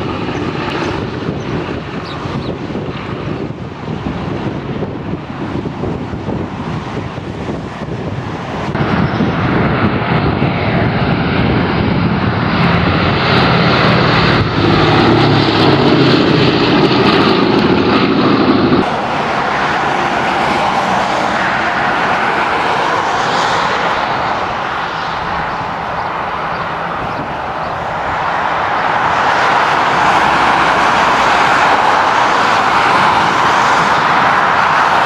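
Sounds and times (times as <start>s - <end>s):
propeller plane engines droning: 0.0s - 35.0s.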